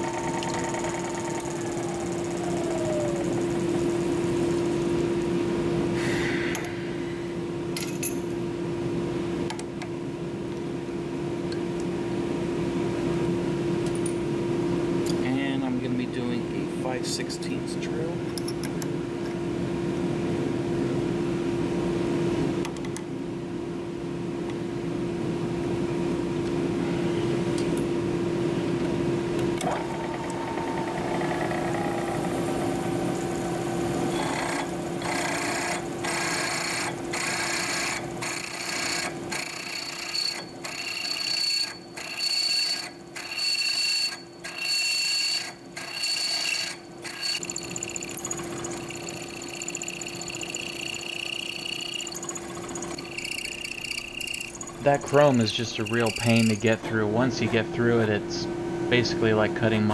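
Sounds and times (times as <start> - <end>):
drill press drilling steel: 33.8 - 56.8
high-pitched drill bit chatter: 34.1 - 56.8.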